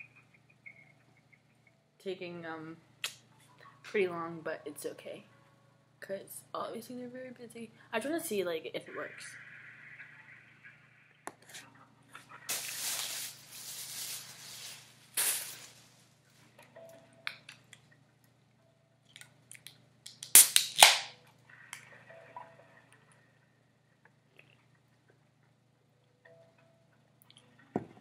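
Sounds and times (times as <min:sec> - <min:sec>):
short hiss from can: 0:12.5 - 0:15.9
handling and rustling noises: 0:12.5 - 0:16.4
drink can cracking open: 0:19.6 - 0:21.1
faint hold music through phone: 0:21.1 - 0:23.8.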